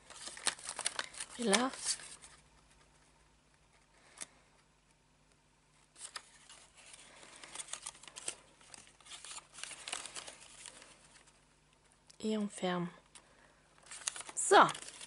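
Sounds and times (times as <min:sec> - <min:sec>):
paper crackling and clicking: 0:00.0 - 0:03.0, 0:05.9 - 0:11.9, 0:13.1 - 0:15.0.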